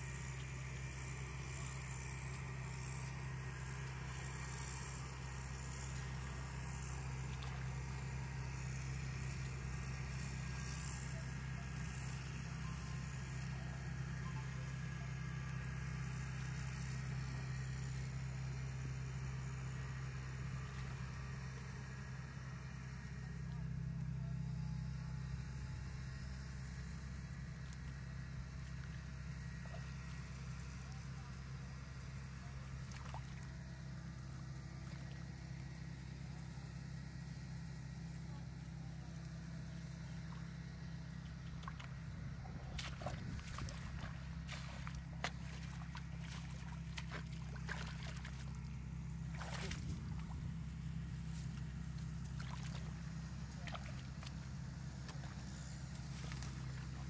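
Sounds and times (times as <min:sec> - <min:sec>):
low engine hum: 0:00.0 - 0:57.0
steady low drone: 0:00.0 - 0:57.0
hands splashing in muddy puddle: 0:05.7 - 0:08.2, 0:32.7 - 0:33.6, 0:41.2 - 0:57.0.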